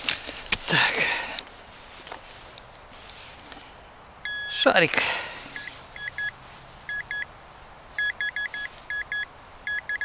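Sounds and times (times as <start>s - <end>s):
metal detector beeps: 4.2s - 4.6s, 5.5s - 6.3s, 6.9s - 7.3s, 8.0s - 10.0s.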